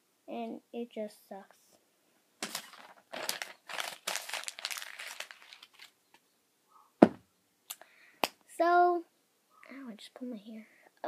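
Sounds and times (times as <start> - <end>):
paper crumpling: 2.4 - 6.0
sharp knock: 7.0 - 7.2.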